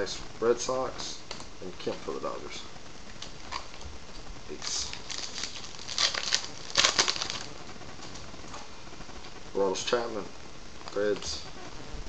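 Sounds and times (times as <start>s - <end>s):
wrapper crinkling and tearing: 3.2s - 8.6s.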